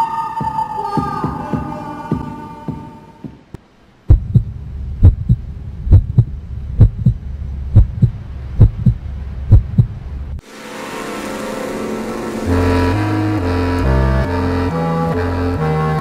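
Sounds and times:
steady low hum: 3.6s - 15.9s
heartbeat thumps: 4.1s - 10.4s
fading tone: 10.4s - 16.0s.

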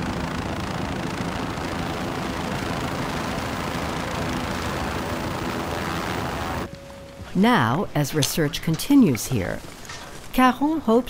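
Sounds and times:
helicopter rotor and turbine: 0.0s - 7.4s.

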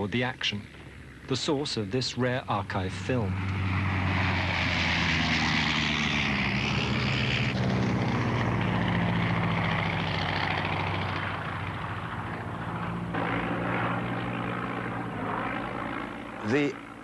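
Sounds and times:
biplane piston engine droning: 0.0s - 17.0s.

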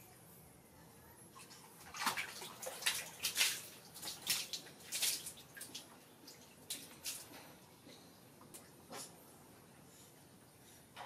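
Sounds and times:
water splashing in bucket: 1.8s - 7.3s.

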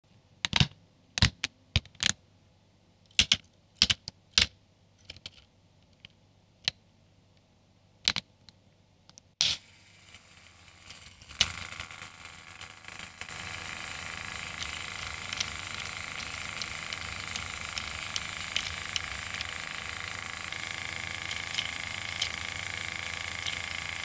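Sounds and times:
plastic parts snapping together: 3.1s - 5.4s
electric motor whirring plastic gears: 9.4s - 24.0s.

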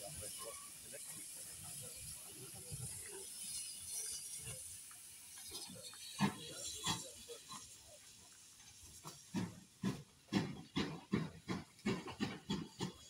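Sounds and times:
railway carriage clanks and knocks: 0.0s - 13.0s.

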